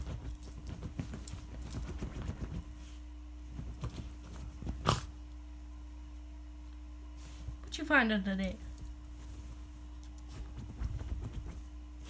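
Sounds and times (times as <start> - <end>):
dog scrabbling on bed covers: 0.0 - 5.2, 8.7 - 12.0.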